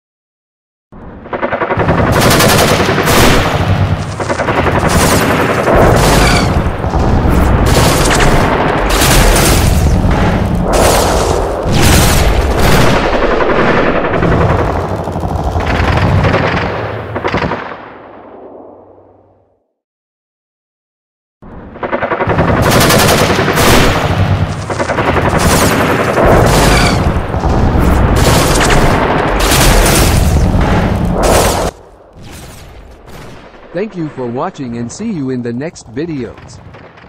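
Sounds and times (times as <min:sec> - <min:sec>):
automatic gunfire: 0:01.8 - 0:17.7, 0:22.2 - 0:31.8.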